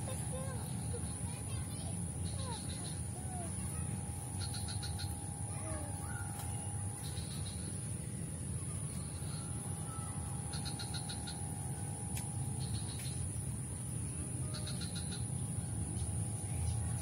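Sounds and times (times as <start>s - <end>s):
birds chirping: 0.0s - 17.0s
steady low rumble: 0.0s - 17.0s.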